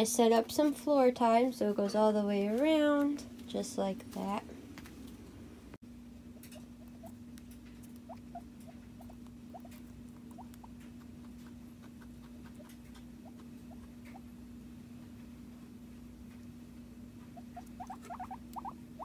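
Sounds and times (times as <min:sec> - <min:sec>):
steady low hum: 0:00.0 - 0:19.0
guinea pig squeaks: 0:06.3 - 0:14.4, 0:17.2 - 0:19.0.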